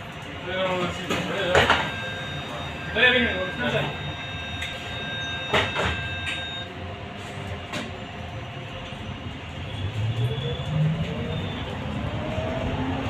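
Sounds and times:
trolleybus running noise: 0.0 - 13.0
steady high tone: 1.1 - 7.0.

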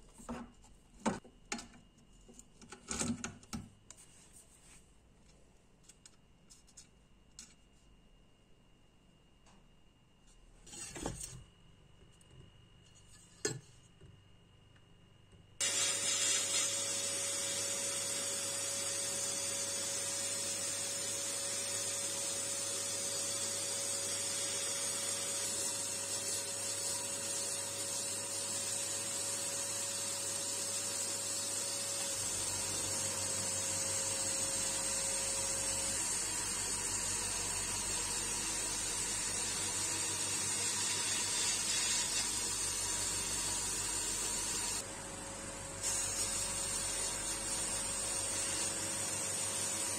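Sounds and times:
sandblasting gun hissing: 15.6 - 22.3, 40.6 - 44.8, 45.8 - 49.9.

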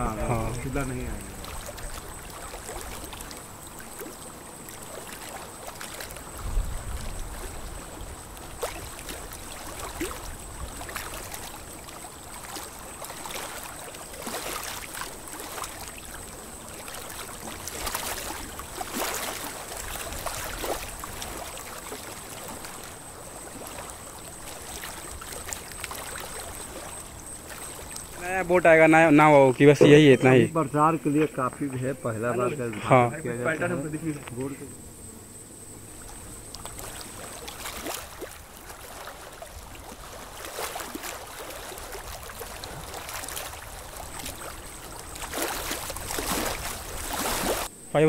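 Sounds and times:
water splashing around boat: 0.0 - 34.7, 35.9 - 47.7
thin steady high tone: 28.1 - 34.8.

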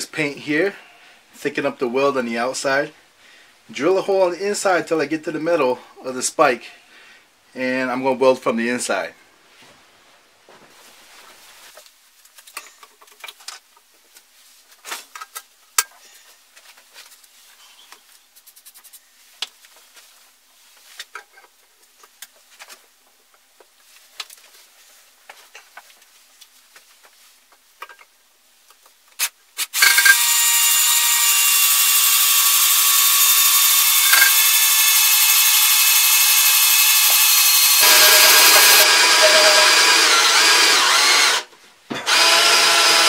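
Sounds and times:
cordless drill whining: 29.6 - 43.0.

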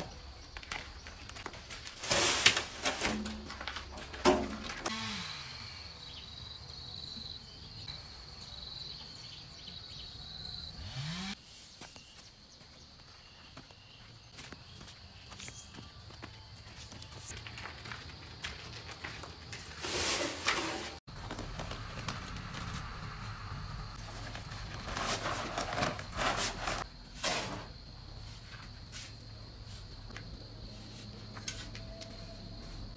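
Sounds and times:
paper sack rustling: 0.8 - 4.9, 17.2 - 23.2, 24.0 - 27.7
wheelbarrow tipping sand clatter: 1.7 - 4.9, 18.6 - 21.0, 24.0 - 27.8
cement powder pouring: 2.0 - 3.2, 19.7 - 21.0.

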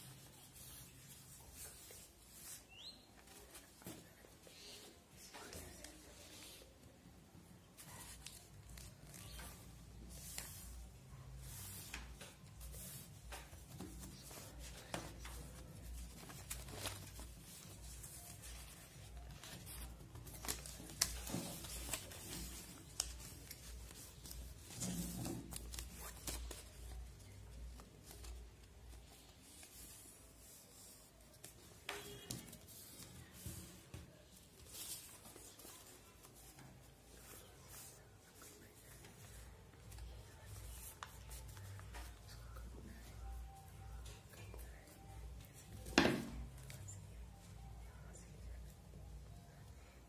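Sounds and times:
paper being folded and creased: 7.7 - 44.2.

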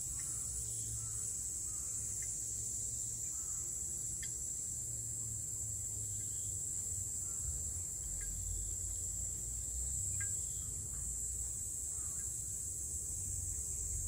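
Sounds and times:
cicadas buzzing: 0.0 - 14.0
faint ringing water drips: 7.2 - 12.6.

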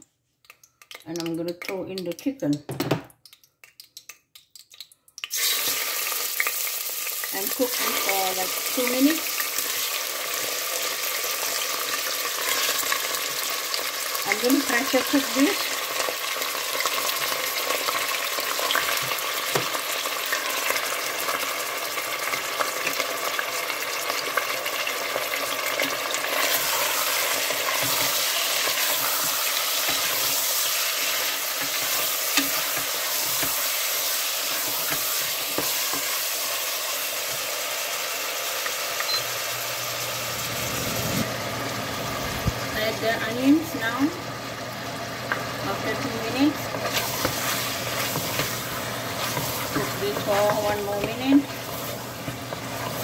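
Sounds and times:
chicken sizzling in hot oil: 5.2 - 53.0
wooden spatula scraping pot: 46.7 - 53.0.

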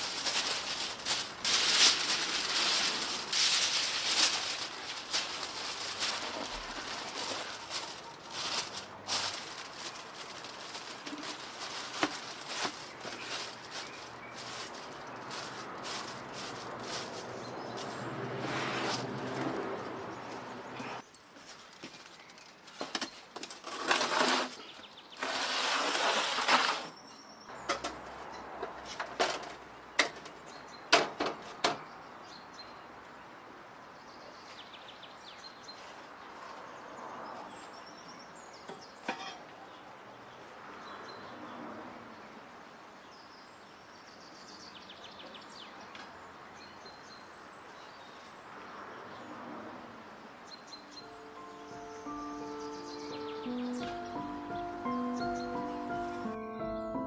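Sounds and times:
small birds chirping: 0.0 - 18.7, 24.5 - 25.3, 50.4 - 57.0.

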